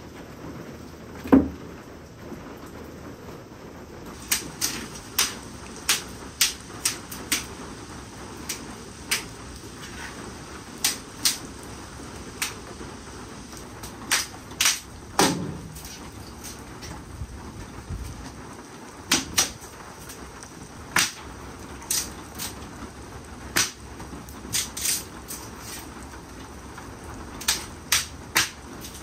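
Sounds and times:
dead branches snapping: 4.2s - 7.5s, 10.8s - 11.5s, 14.0s - 16.5s, 19.1s - 20.2s.

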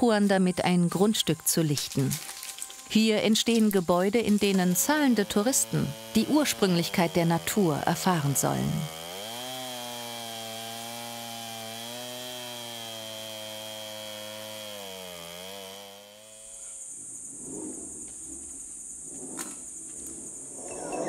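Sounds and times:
chainsaw cutting log: 1.8s - 16.8s.

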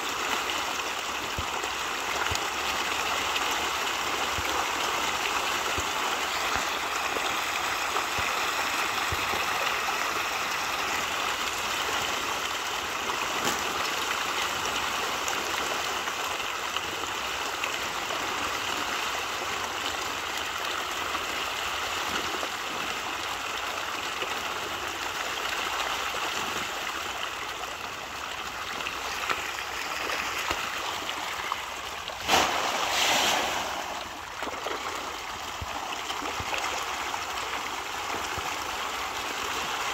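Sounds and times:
fish splashing at surface: 29.0s - 36.9s.

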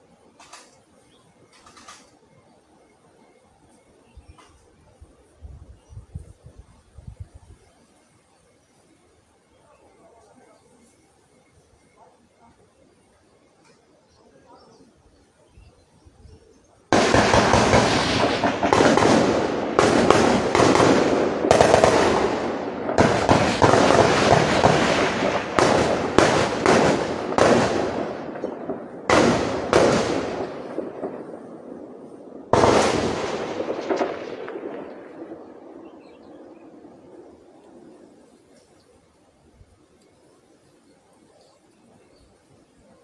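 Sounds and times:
gunfire bursts: 16.9s - 31.7s, 32.4s - 36.7s
gunshot rolling echo: 16.9s - 38.1s.

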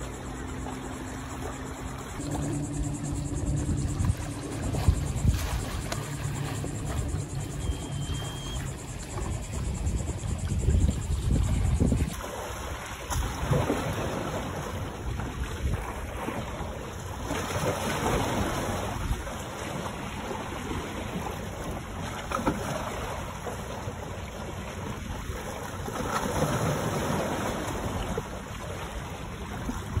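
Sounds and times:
wind buffeting microphone: 2.2s - 12.2s
waves splashing against rocks: 3.8s - 8.5s, 11.8s - 30.0s.

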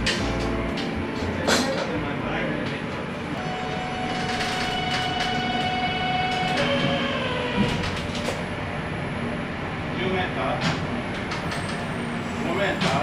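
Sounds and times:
electric train motor whine: 3.4s - 9.4s.

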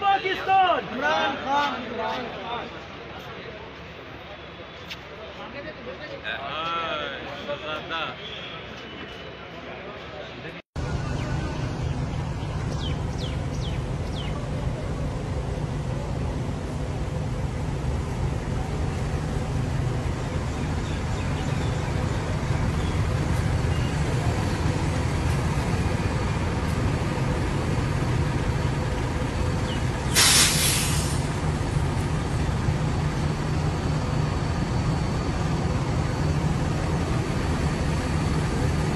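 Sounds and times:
coach engines rumbling: 0.0s - 38.9s
air brake hiss: 30.1s - 31.4s.

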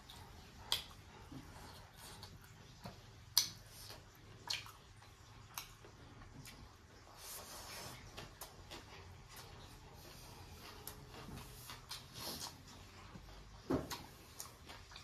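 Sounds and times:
wet squelches of eating by hand: 0.0s - 15.0s.

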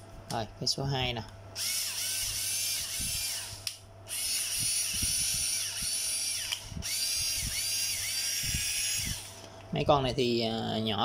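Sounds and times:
mini screwdriver motor whine: 1.6s - 9.4s.

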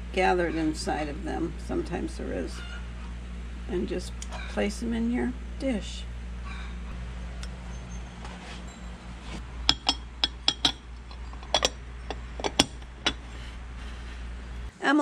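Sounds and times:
steady low hum: 0.0s - 15.0s
glass lid clinking on dish: 9.7s - 13.2s.

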